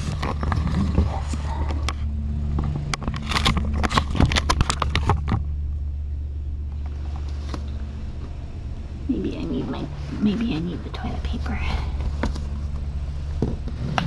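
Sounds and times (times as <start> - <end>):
objects handled near microphone: 0.0 - 5.6, 6.7 - 8.4, 12.0 - 14.0
steady low hum: 0.0 - 14.0.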